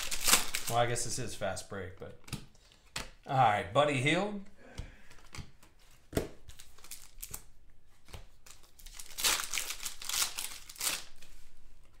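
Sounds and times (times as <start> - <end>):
wrapper crinkling and tearing: 0.0 - 1.1, 6.5 - 7.5, 8.4 - 11.5.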